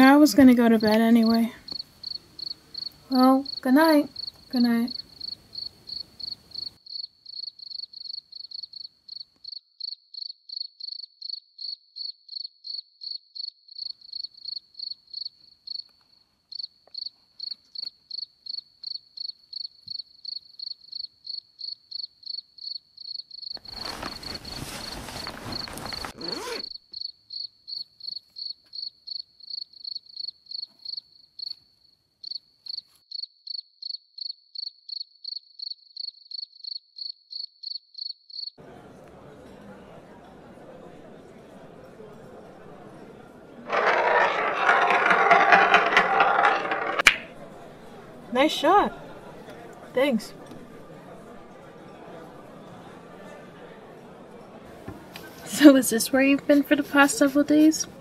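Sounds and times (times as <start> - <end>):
cricket chirping: 1.7 - 3.6, 4.2 - 38.6.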